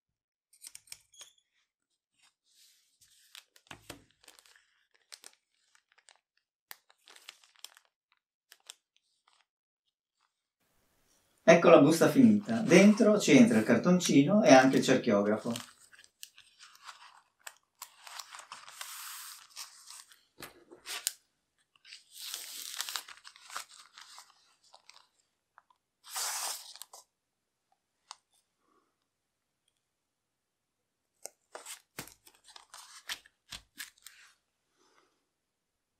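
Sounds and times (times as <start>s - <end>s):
plastic film crinkling: 3.0s - 9.5s, 14.6s - 21.2s, 21.8s - 27.0s, 31.5s - 34.3s.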